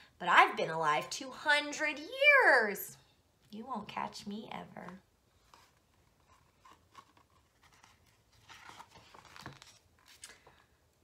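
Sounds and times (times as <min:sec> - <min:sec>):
paper page rustling: 0:05.3 - 0:10.6.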